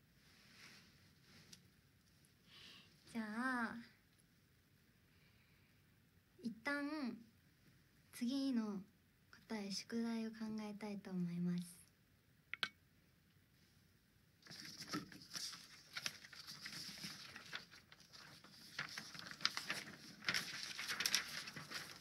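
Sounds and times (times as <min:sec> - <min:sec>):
rustling and scratching: 0:14.4 - 0:22.0.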